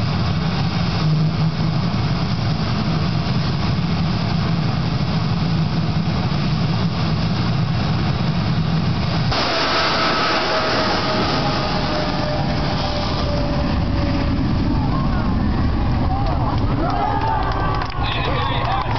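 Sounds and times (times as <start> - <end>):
high whine falling in pitch: 0.0 - 18.9
jet engine rumble: 0.0 - 18.9.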